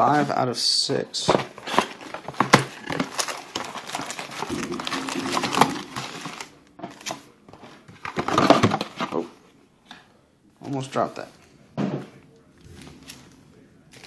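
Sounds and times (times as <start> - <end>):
foil packs crinkling: 1.6 - 7.2.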